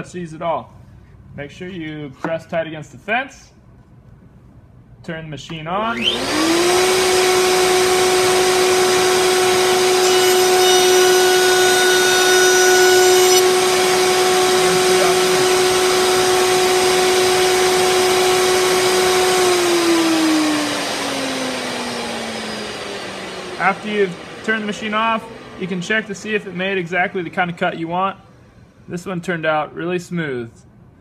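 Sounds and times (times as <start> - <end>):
router bit whining through wood: 5.9 - 27.3
router spinning down: 5.9 - 27.4
router humming: 5.9 - 28.0.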